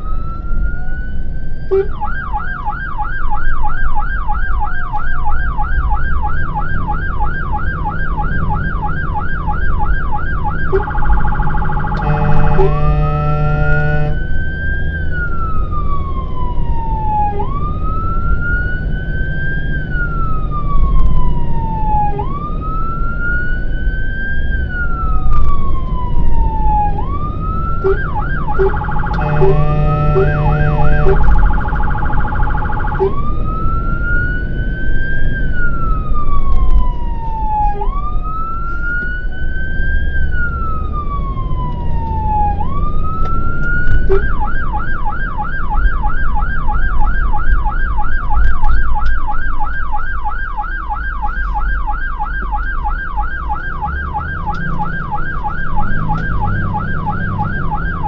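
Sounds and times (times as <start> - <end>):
engine rumble: 0.0 - 58.0
fire engine siren: 0.0 - 58.0
horn blast: 10.7 - 14.3, 27.8 - 31.7.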